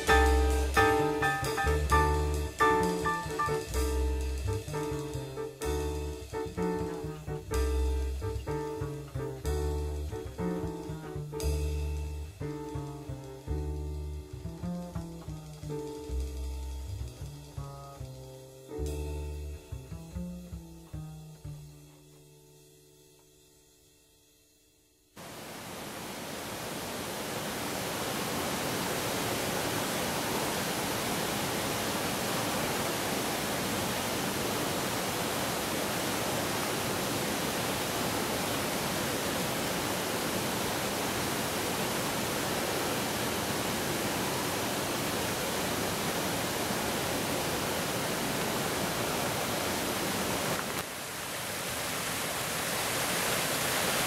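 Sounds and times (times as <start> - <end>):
waterfall and stream rushing: 25.2 - 54.0.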